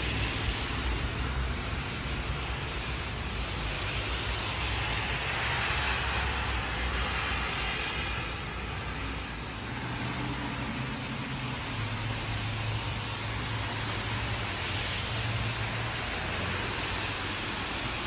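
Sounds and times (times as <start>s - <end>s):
heavy rain hiss: 0.0s - 18.0s
car driving past on wet road: 3.6s - 18.0s.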